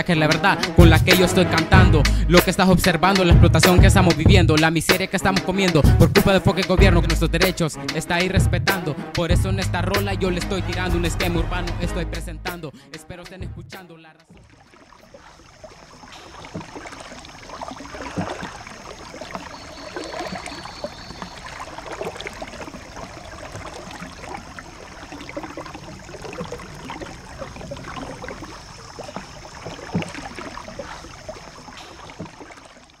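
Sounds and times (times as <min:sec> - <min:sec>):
water splashes: 0:00.0 - 0:12.1, 0:13.1 - 0:33.0
paddle sloshing through water: 0:14.2 - 0:33.0.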